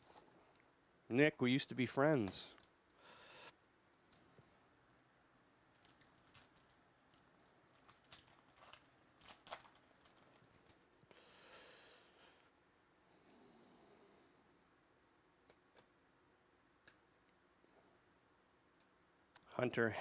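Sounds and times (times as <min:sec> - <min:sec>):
foil wrapper crinkling and tearing: 0:05.7 - 0:11.0.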